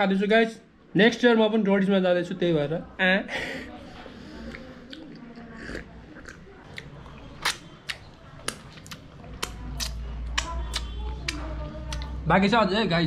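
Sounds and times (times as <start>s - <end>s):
person chewing crunchy food: 4.4s - 10.0s.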